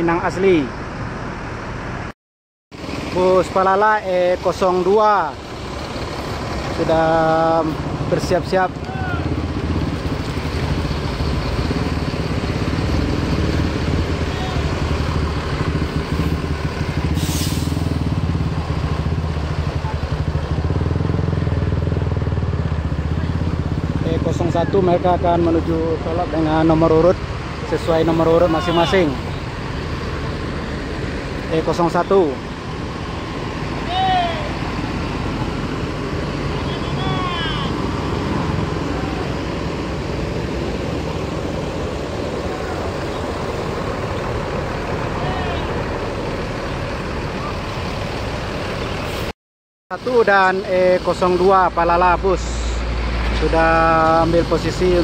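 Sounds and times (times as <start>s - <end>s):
diesel bus engine idling: 2.8s - 49.3s
short hiss: 17.2s - 17.9s.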